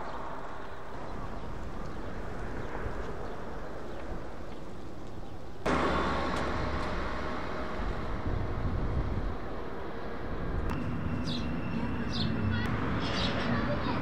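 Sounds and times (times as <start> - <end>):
hum of street traffic: 0.0 - 14.0
bird chirps: 10.8 - 13.8.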